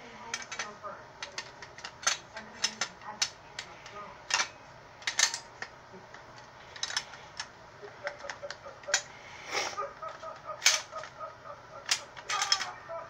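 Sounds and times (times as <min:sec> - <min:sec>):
metal parts scraping: 0:00.2 - 0:09.1, 0:10.0 - 0:11.1, 0:11.8 - 0:12.8
shotgun parts clicking: 0:00.3 - 0:09.2, 0:10.0 - 0:12.8.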